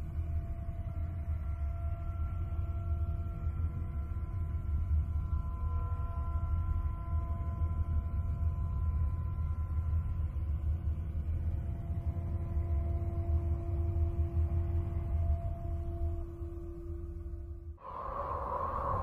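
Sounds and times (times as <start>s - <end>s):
deep rumble: 17.8s - 19.0s
eerie held tones: 17.8s - 19.0s.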